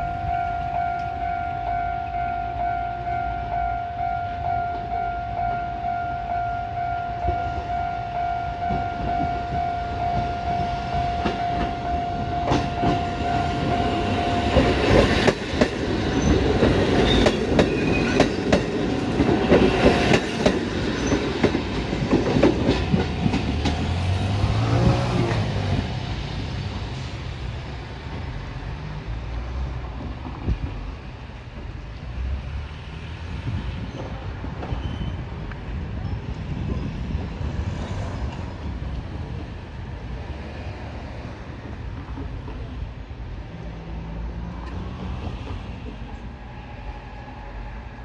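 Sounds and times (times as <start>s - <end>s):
level crossing warning bell: 0.0s - 15.3s
train wheels clacking over rails: 8.7s - 26.0s, 41.5s - 43.0s.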